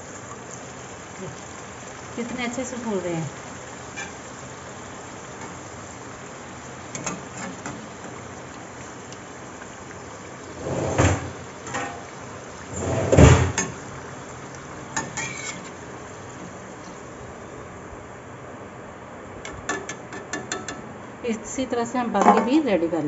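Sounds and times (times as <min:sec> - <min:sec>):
oil sizzling: 0:00.0 - 0:23.0
metal spoon scraping a pan: 0:03.9 - 0:04.2, 0:15.0 - 0:15.8.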